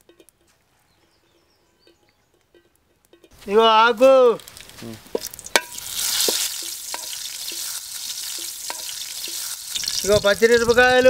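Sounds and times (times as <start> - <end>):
leaves sizzling in hot oil: 3.3 - 11.0.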